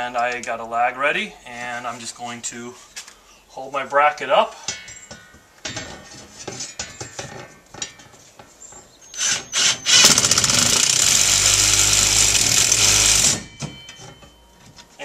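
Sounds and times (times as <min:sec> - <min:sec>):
cordless drill drilling into wood: 0:09.2 - 0:13.5.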